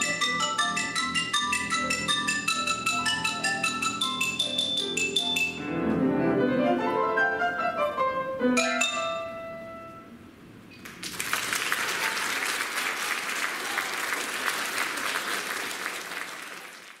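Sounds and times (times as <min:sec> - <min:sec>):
mallet percussion and piano: 0:00.0 - 0:10.0
audience applauding: 0:10.8 - 0:17.0.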